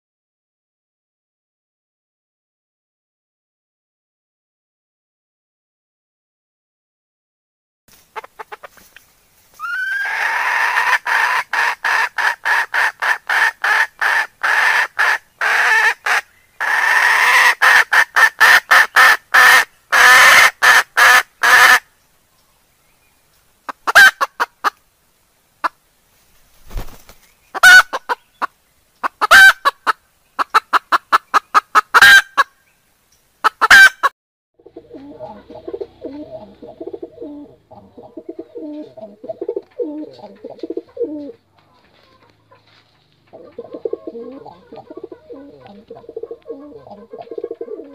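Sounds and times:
hens clucking: 8.1 - 9.0, 9.6 - 21.8, 23.6 - 24.8, 26.7 - 32.5, 33.4 - 47.9.

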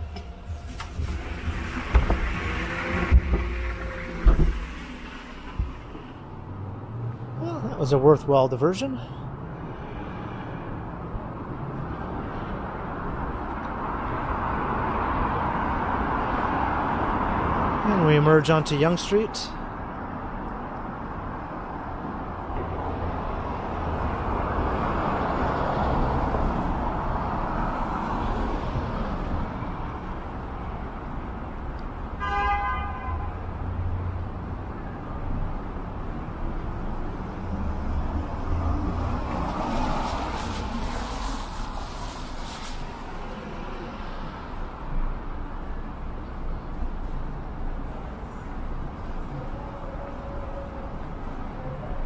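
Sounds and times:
vehicles passing by: 0.0 - 52.0
car horn toot: 32.2 - 33.4.

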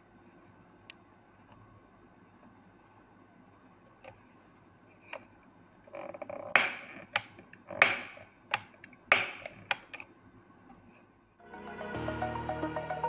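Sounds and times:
hammer snapping metallic click: 6.6 - 9.9.

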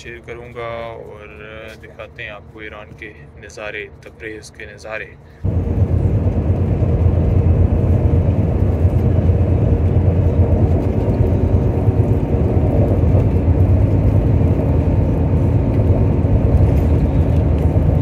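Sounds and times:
bus engine and tyre drone: 5.2 - 18.0.

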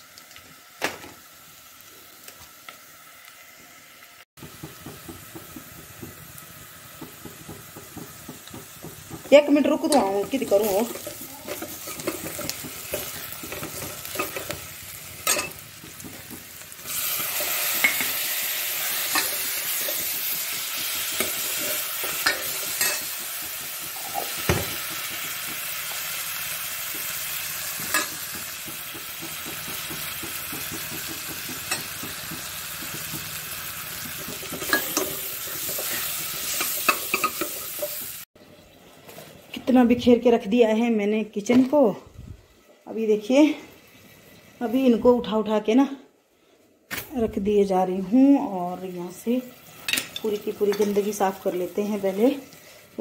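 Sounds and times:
food sizzling in hot oil: 0.0 - 38.8, 48.6 - 53.0.

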